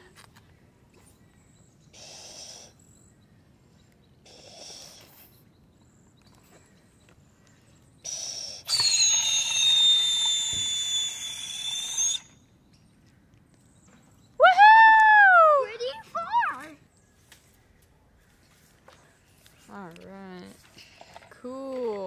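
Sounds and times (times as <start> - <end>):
shrill two-tone whistle: 8.7 - 12.4.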